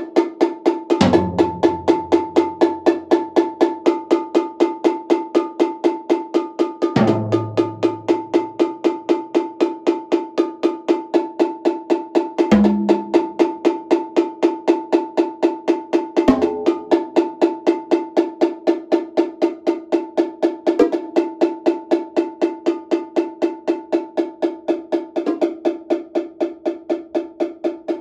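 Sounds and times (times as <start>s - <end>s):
cowbell struck in steady pulse: 0.2s - 28.0s
drum strokes: 0.9s - 3.5s, 6.9s - 8.9s, 12.5s - 13.6s, 16.3s - 17.2s.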